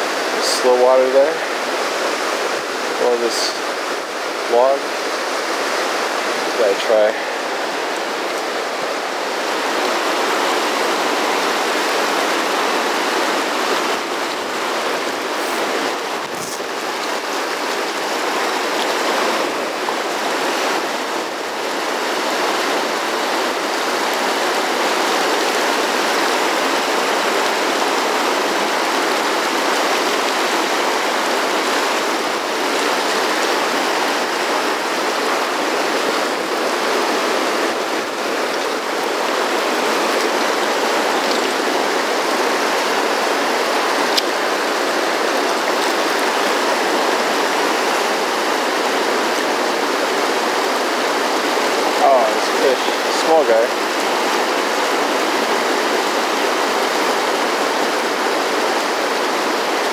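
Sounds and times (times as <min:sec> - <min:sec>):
river rapids rushing over boulders: 0:00.0 - 0:59.9.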